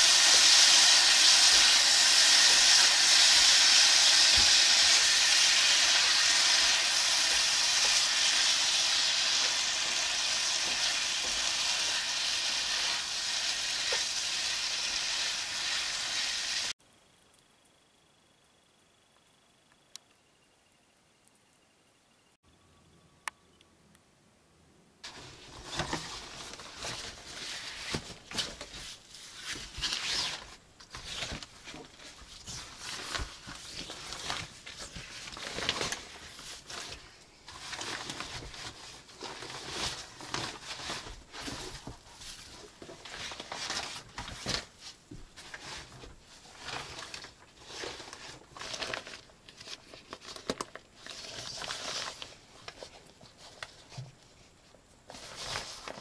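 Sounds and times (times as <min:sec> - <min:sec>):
rustling and crinkling: 0:25.0 - 0:56.0.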